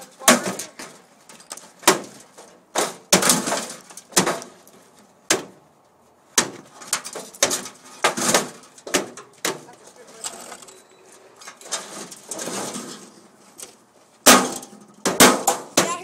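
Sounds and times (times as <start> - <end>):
metal knocks and clatters: 6.4 - 10.8.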